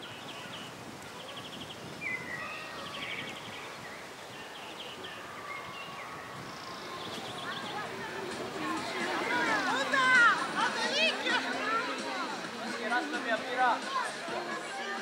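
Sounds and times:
small birds chirping and trilling: 0.0s - 10.6s.

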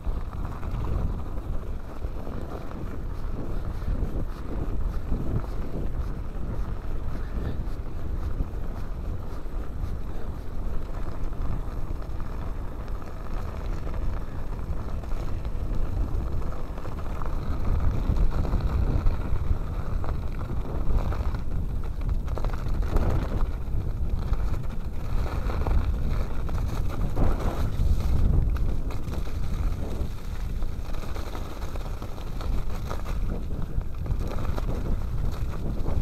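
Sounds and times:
tyres rumbling on snow: 0.0s - 36.0s
wind buffeting microphone: 0.0s - 36.0s.

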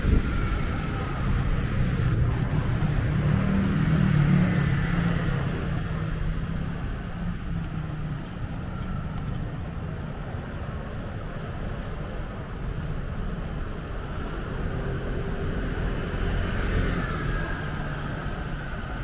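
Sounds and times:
steady traffic rumble: 0.0s - 19.0s.

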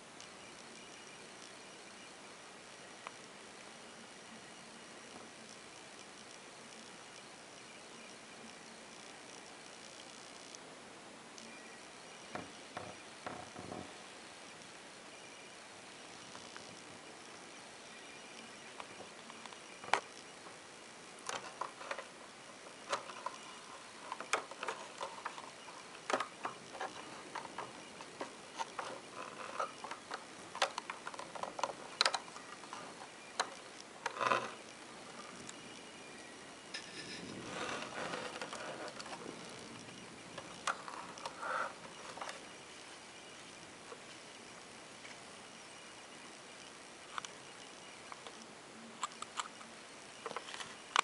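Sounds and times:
wooden clicks and knocks: 12.3s - 14.0s
soft rustling: 21.2s - 44.3s.

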